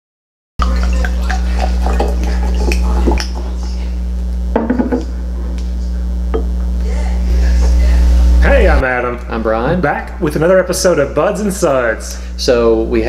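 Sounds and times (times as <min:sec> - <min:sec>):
fizzy ticks: 0:00.6 - 0:03.4
beer pouring into glass: 0:00.6 - 0:03.6
electrical hum: 0:00.6 - 0:13.0
bottle knocking on bar top: 0:04.6 - 0:05.1.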